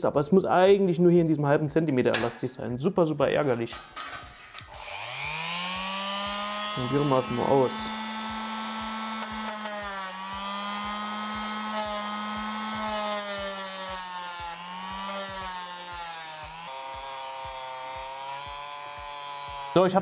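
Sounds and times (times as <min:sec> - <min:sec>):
rotary tool grinding metal: 0:04.6 - 0:19.8.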